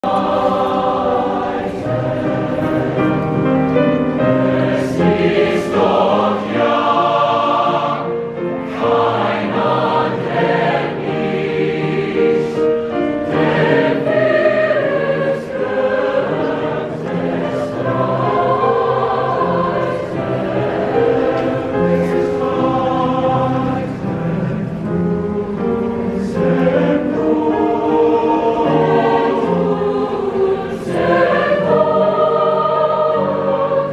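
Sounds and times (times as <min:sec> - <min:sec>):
mixed choir singing: 0:00.0 - 0:33.9.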